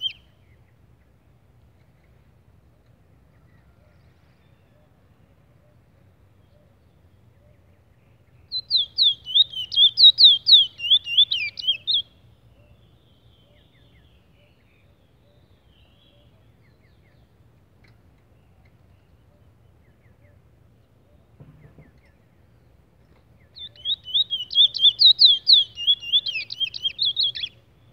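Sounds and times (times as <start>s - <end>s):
finch singing whistled notes: 0.0s - 0.8s, 6.4s - 17.4s, 23.4s - 27.9s
faint knock: 21.3s - 22.2s.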